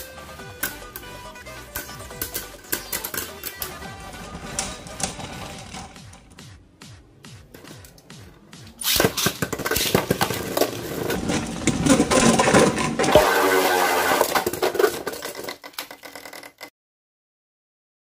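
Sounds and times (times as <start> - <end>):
spinning tops whirring: 0.6 - 6.3.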